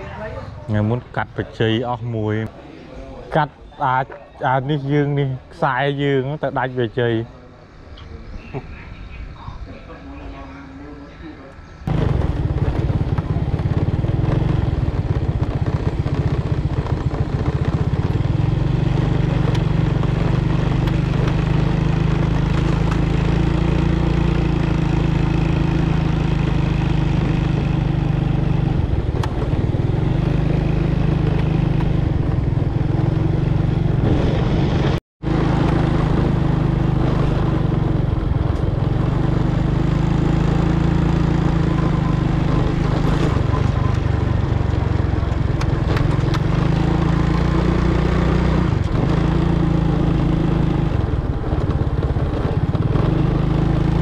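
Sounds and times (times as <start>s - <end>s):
small engine running: 11.9s - 54.0s.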